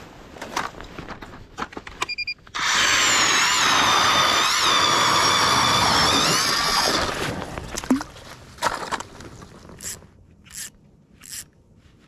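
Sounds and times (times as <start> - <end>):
ice auger motor whining: 2.6 - 7.4.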